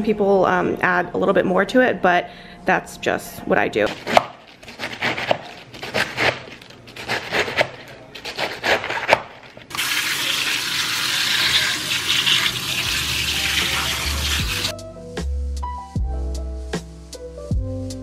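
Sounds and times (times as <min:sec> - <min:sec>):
knife chopping lettuce on plastic board: 0:03.9 - 0:09.4
kitchen tap running: 0:09.7 - 0:14.7
music: 0:12.6 - 0:18.0.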